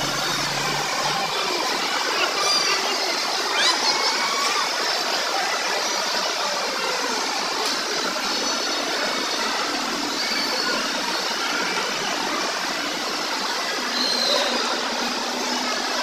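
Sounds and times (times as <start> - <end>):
indistinct crowd voices echoing: 0.0 - 7.5
faint children's high sounds: 0.0 - 16.0.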